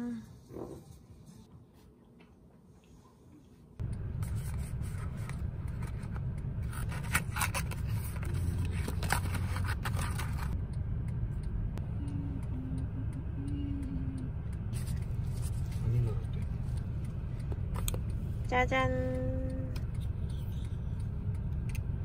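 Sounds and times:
paper packaging rustling: 0:04.2 - 0:10.6.

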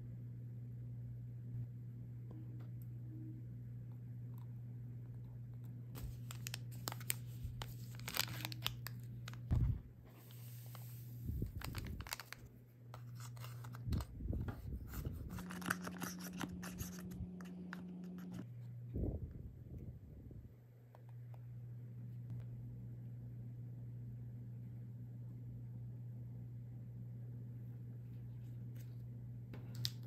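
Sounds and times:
packet tearing rustle: 0:06.0 - 0:09.5, 0:10.7 - 0:14.1, 0:14.9 - 0:17.2
plastic spoon scraping tray: 0:14.9 - 0:18.4.

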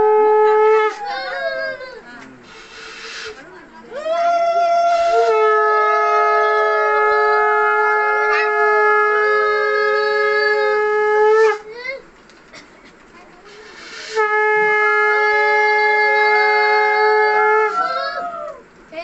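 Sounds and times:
conch shell blast: 0:00.0 - 0:01.8, 0:04.9 - 0:11.7, 0:13.7 - 0:17.9.

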